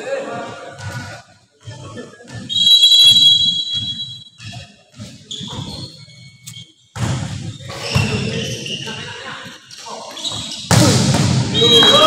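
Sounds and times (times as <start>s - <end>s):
referee's whistle blast: 2.5s - 4.3s, 10.7s - 12.0s.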